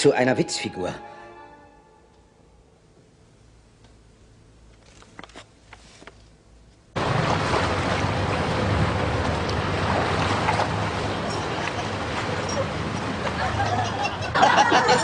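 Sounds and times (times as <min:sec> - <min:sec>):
rush of water and wind: 0:07.0 - 0:14.3
ship engine drone: 0:07.0 - 0:15.0.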